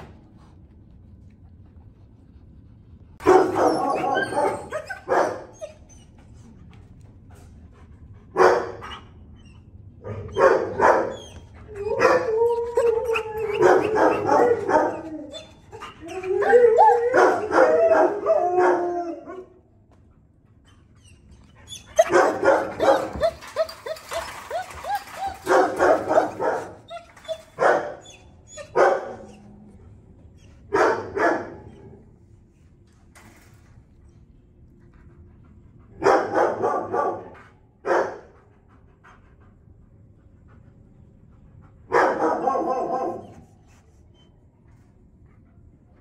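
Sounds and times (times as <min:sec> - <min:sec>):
dogs barking: 0:03.2 - 0:05.6, 0:08.4 - 0:09.0, 0:10.1 - 0:12.3, 0:13.4 - 0:15.1, 0:22.0 - 0:23.6, 0:36.0 - 0:38.3, 0:41.9 - 0:43.4
dogs whining yelps: 0:03.2 - 0:06.2, 0:08.8 - 0:19.4, 0:20.7 - 0:29.6.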